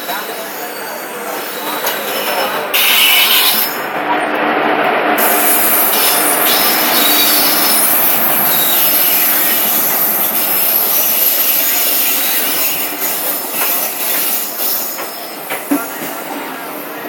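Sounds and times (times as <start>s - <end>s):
train wheels rushing on rails: 0.0s - 17.0s
wheels clacking over rail joints: 12.0s - 16.2s.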